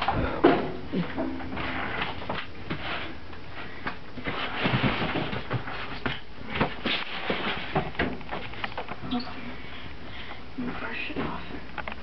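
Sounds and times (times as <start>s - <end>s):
rustling: 1.0s - 9.9s.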